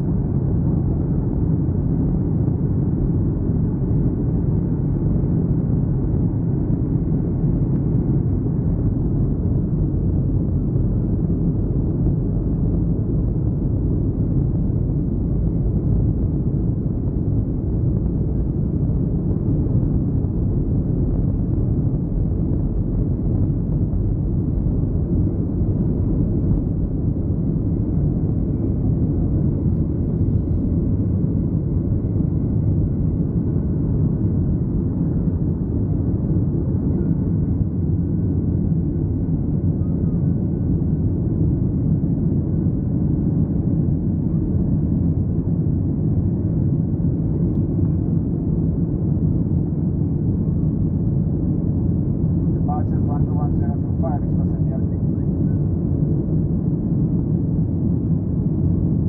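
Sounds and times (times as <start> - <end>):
jet engines and wheels rumbling: 0.0 - 59.0.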